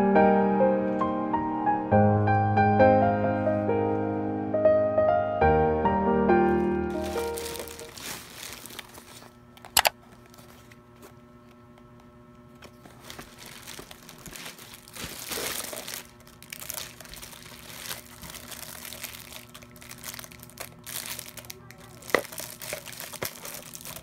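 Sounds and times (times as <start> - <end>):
plastic packaging crinkling: 6.5 - 11.2, 12.6 - 24.0.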